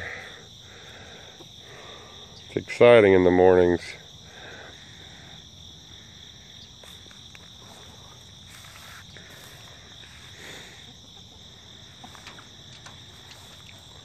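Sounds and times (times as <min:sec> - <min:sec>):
crickets chirping: 0:00.0 - 0:14.0
soft rustles: 0:06.8 - 0:10.4.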